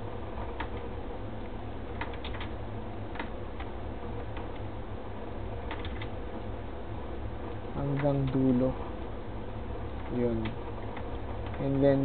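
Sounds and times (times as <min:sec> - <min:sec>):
steady low hum: 0:00.0 - 0:12.0
mouse and keys clicking: 0:01.9 - 0:02.5, 0:03.1 - 0:03.7, 0:05.6 - 0:06.1.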